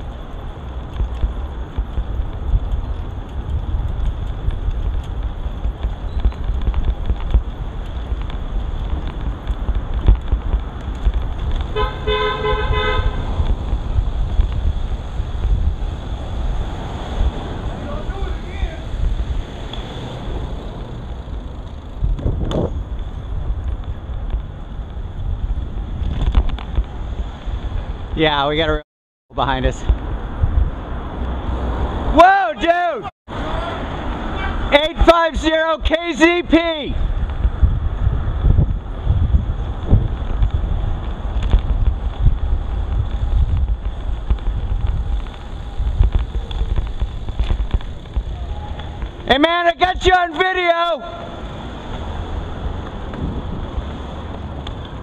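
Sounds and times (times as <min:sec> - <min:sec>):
small rattles and clicks: 0:00.0 - 0:11.8, 0:26.0 - 0:27.0, 0:40.1 - 0:49.3
wind buffeting microphone: 0:00.0 - 0:28.7, 0:29.6 - 0:32.1, 0:36.9 - 0:49.3, 0:51.4 - 0:55.0
low rumble of bicycle ride: 0:00.0 - 0:32.2, 0:32.9 - 0:55.0.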